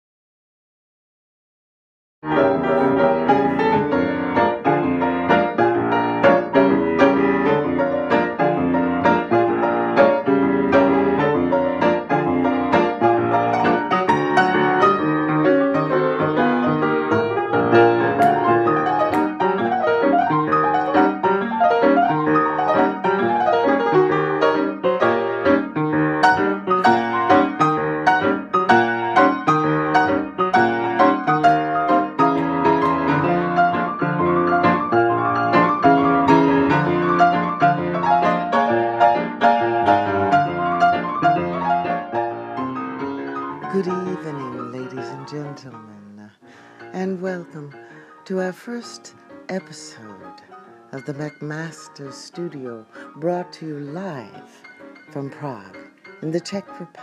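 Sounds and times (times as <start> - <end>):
solo jazz piano: 2.2 - 57.0.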